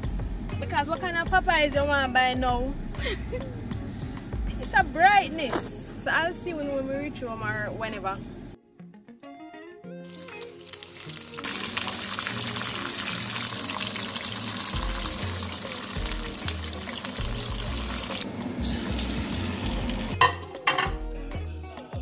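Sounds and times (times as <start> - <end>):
music with stepping bass line: 0.0 - 5.6, 14.8 - 18.1, 18.7 - 22.0
sausages sizzling in frying pan: 10.1 - 20.3.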